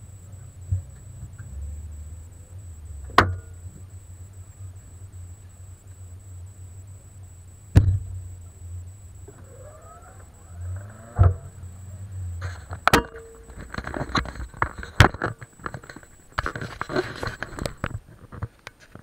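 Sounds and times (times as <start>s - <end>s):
car engine humming: 0.0s - 16.4s
rustling: 9.2s - 19.0s.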